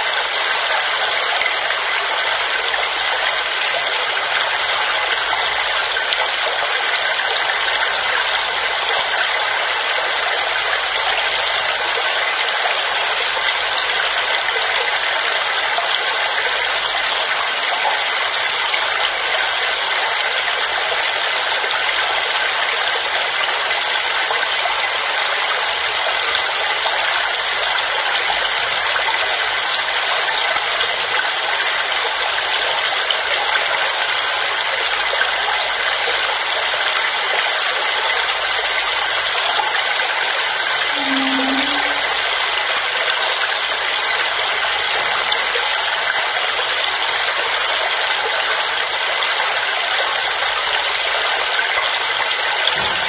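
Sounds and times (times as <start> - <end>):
waterfall rushing: 37.8 - 48.9.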